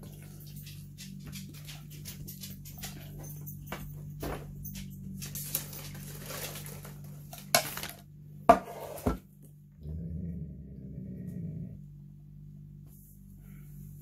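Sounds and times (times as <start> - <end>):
low steady hum: 0.0 - 14.0
bowl scraping and knocking: 8.5 - 9.3.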